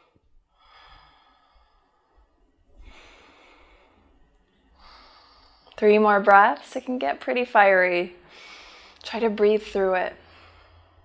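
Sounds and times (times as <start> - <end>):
woman breathing deeply: 0.0 - 5.8, 8.2 - 9.0, 10.2 - 11.0.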